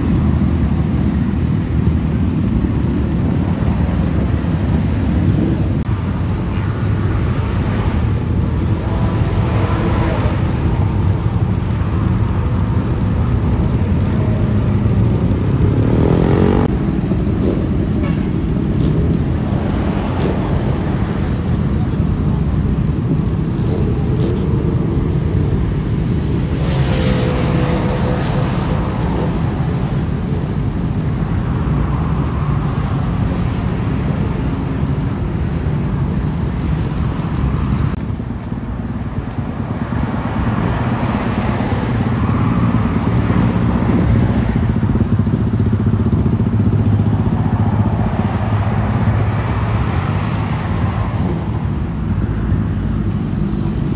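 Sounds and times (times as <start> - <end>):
motorcycle engines running: 0.0 - 53.9
motorcycle passing by: 15.6 - 17.8.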